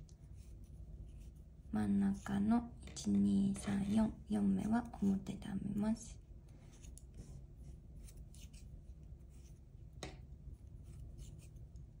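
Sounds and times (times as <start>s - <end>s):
yarn rubbing on knitting needles: 0.0s - 2.8s, 6.6s - 9.7s, 10.4s - 11.8s.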